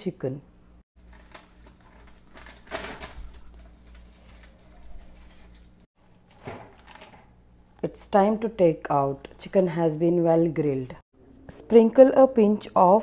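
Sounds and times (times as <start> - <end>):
foil rustle: 1.0 - 5.9.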